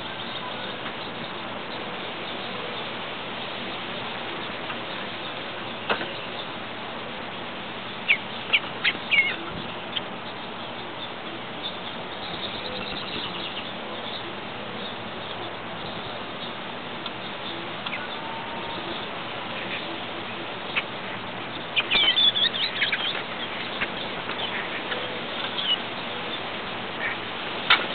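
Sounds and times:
steady background hiss: 0.0 - 27.9
bird chirps: 7.8 - 27.2.

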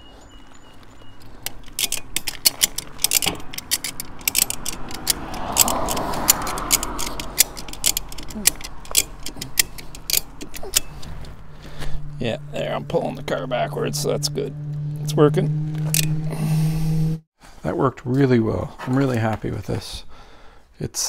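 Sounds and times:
ratchet pawl clicking: 1.5 - 11.4.

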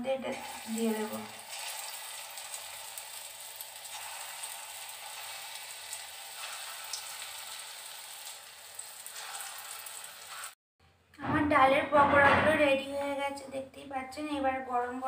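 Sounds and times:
batter sizzling in hot oil: 0.2 - 10.6.

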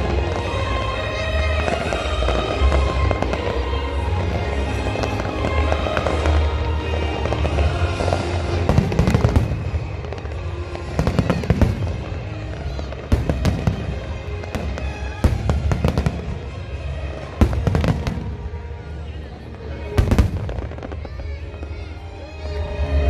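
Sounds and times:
fireworks bangs and crackling: 0.0 - 23.0.

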